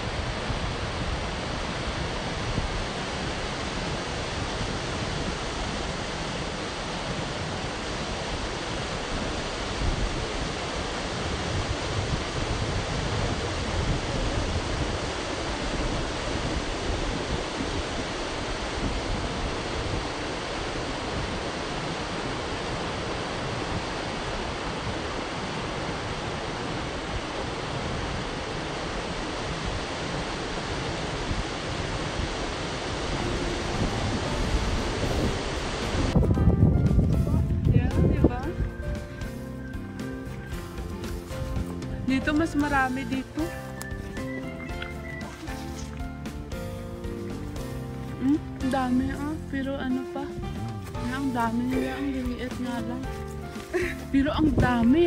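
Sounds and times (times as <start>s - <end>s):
river rushing over boulders: 0.0s - 36.2s.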